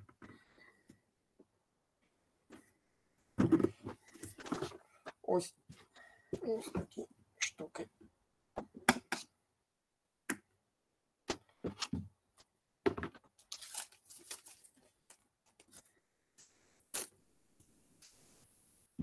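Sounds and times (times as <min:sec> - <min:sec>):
tape tearing: 0:13.4 - 0:14.8, 0:16.9 - 0:17.1.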